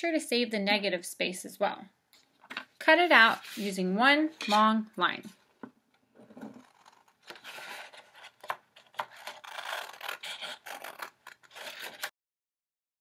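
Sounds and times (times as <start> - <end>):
scissors cutting paper: 6.5 - 12.1.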